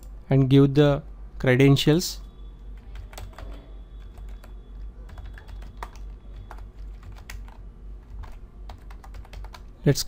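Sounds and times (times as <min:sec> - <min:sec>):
steady low hum: 0:00.0 - 0:10.0
keyboard typing: 0:02.8 - 0:09.8.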